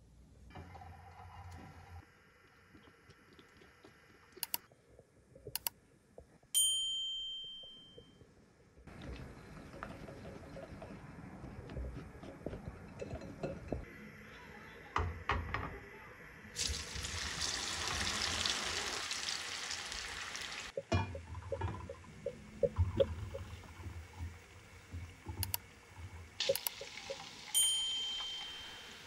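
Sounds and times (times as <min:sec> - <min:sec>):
potatoes deep-frying in oil: 0:16.5 - 0:22.2, 0:22.8 - 0:29.0.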